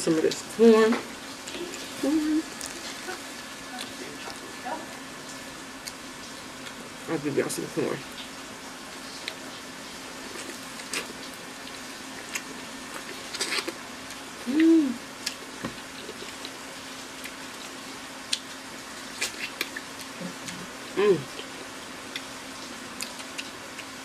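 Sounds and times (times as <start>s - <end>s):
faint steady hum: 0.0s - 24.0s
person humming: 1.6s - 3.2s, 14.4s - 15.0s, 21.0s - 21.3s
chewing corn on the cob: 9.0s - 14.6s, 15.2s - 24.0s.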